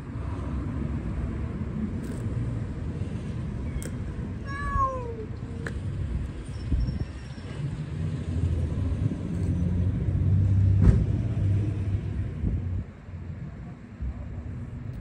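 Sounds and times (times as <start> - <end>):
car engine rumble passing by: 5.4 - 13.3.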